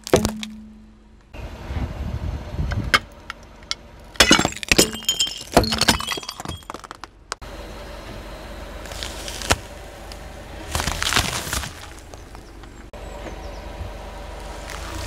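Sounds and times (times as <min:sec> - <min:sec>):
low rumble: 0:00.4 - 0:04.2
objects cracking under car tyre: 0:02.9 - 0:07.4, 0:08.9 - 0:09.8, 0:10.7 - 0:12.9
glassy fragments clinking: 0:04.2 - 0:07.0.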